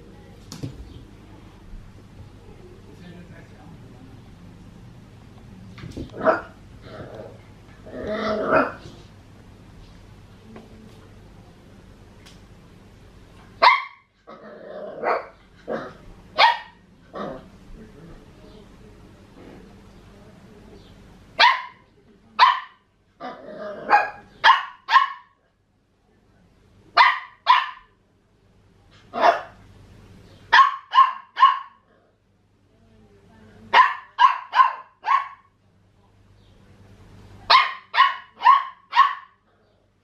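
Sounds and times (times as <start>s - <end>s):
puppy yapping: 13.6s - 14.0s, 30.5s - 31.8s, 33.8s - 35.5s, 37.5s - 39.4s.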